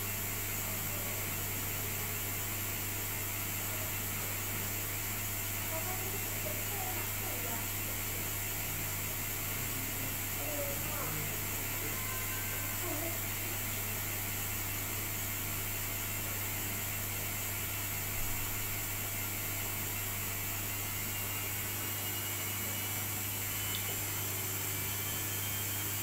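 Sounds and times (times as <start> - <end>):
washing machine spinning: 0.0 - 26.0
faint high whine: 9.6 - 14.6.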